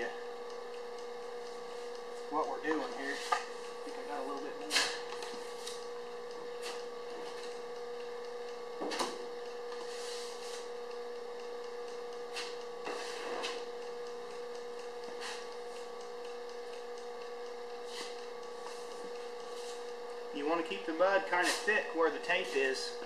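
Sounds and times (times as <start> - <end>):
electrical hum: 0.0 - 23.0
spreader scraping filler on metal: 12.3 - 13.6.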